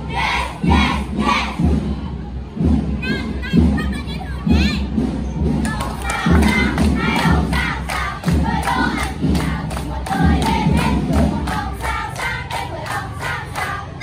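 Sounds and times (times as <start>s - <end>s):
girls singing in unison: 0.0s - 1.6s, 5.6s - 14.0s
rhythmic hand clapping: 5.5s - 14.0s.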